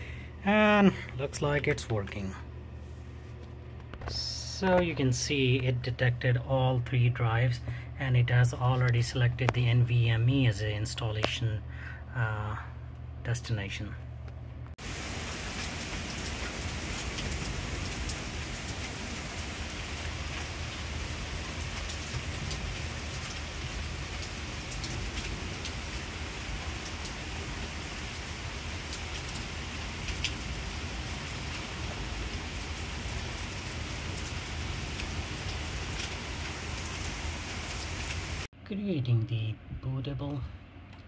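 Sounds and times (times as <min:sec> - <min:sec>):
rain on paving and lawn: 0:14.8 - 0:38.5.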